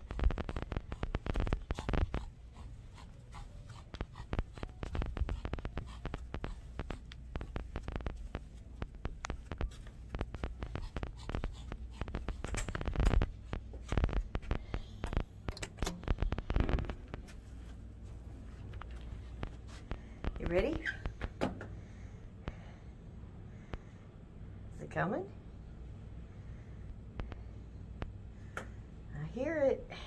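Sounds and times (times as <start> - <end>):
clothing and phone rustling: 0.0 - 21.4.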